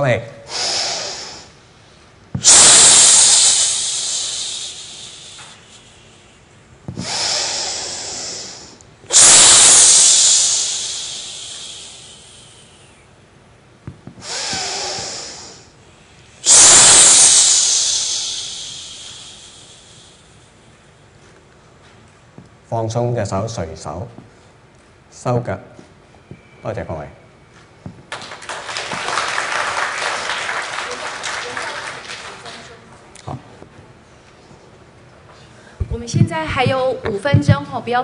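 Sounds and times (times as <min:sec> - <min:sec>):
soft in-breaths: 0:00.4 - 0:13.1, 0:14.2 - 0:22.0, 0:35.2 - 0:35.9
man breathing out forcefully: 0:00.5 - 0:01.6, 0:02.4 - 0:06.3, 0:06.9 - 0:13.0, 0:14.2 - 0:15.7, 0:16.4 - 0:20.3.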